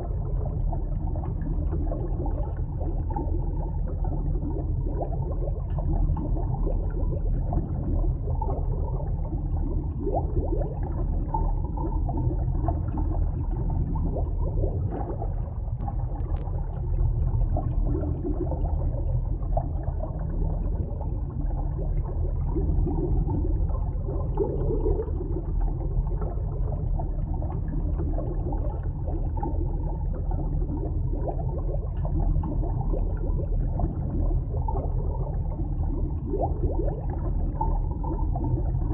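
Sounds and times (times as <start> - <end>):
underwater rumble with bubbling: 0.0 - 38.9
faint click: 15.8 - 16.6.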